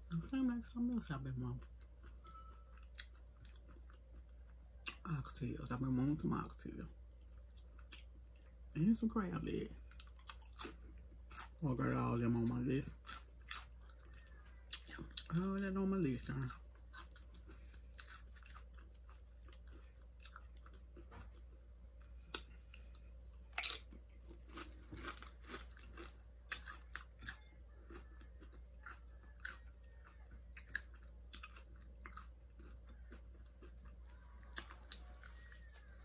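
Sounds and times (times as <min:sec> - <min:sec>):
crunching tortilla chips: 0:23.5 - 0:36.0.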